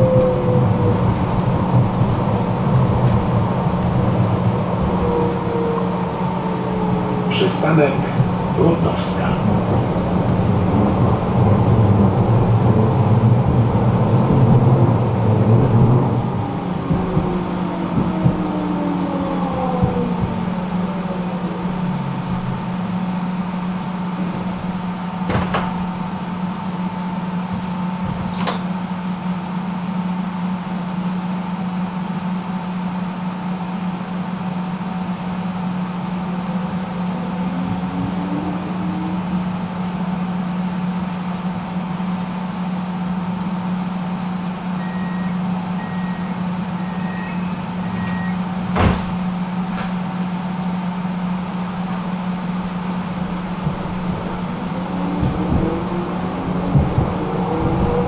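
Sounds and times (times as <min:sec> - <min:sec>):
rising motor whine: 0:00.0 - 0:26.2, 0:34.6 - 0:41.6, 0:50.2 - 0:58.0
tram electric hum: 0:00.0 - 0:58.0.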